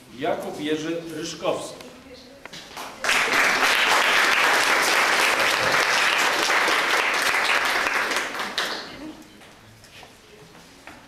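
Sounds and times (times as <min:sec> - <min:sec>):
audience clapping: 0:02.7 - 0:09.0.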